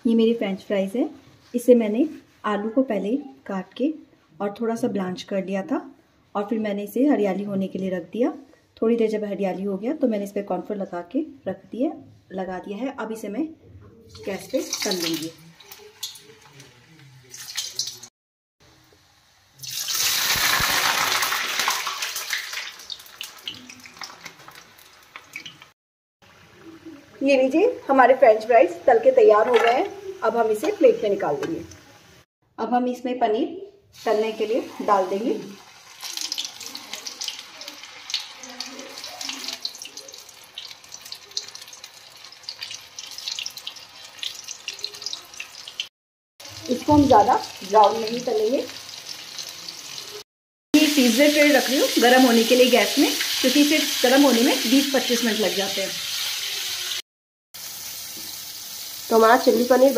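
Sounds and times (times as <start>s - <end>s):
fries sizzling in hot oil: 14.1s - 18.1s, 18.7s - 32.2s, 33.9s - 50.2s, 50.8s - 57.0s, 57.6s - 59.9s
oil crackling: 19.6s - 25.7s, 35.7s - 45.9s.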